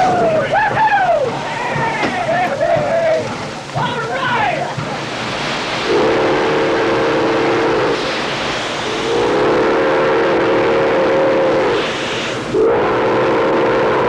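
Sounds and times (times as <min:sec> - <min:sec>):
steam hissing: 0:00.0 - 0:14.0
steam locomotive whistle: 0:05.8 - 0:14.0.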